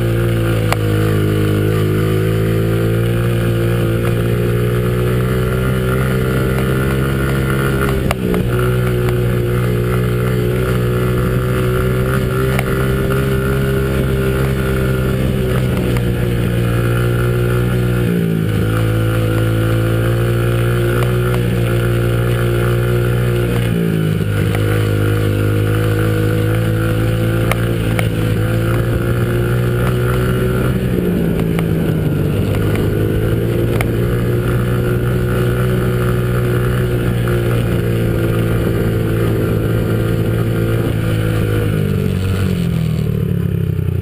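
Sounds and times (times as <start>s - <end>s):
dirt bike engine running: 0.0s - 44.0s.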